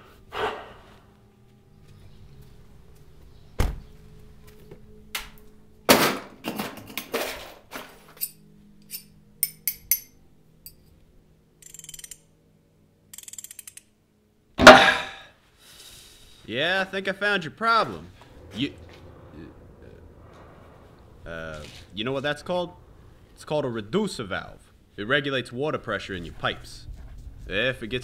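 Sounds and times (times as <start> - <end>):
faint low hum: 0.8 - 5.9, 16.4 - 28.0
loud thunk: 14.6 - 15.2.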